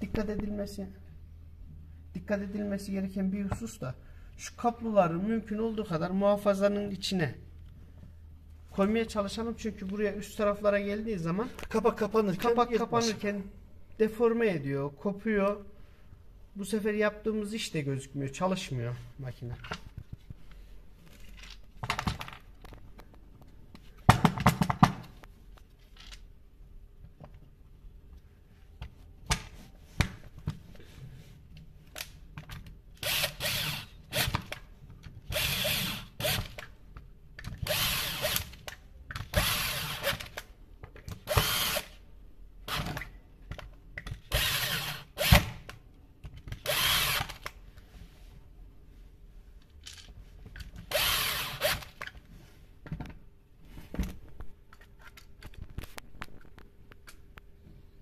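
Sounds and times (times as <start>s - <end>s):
power drill driving screws: 33.0s - 34.4s, 35.3s - 36.6s, 37.6s - 38.6s, 39.3s - 40.4s, 41.3s - 42.0s, 44.3s - 45.5s, 46.6s - 47.5s, 50.9s - 51.9s.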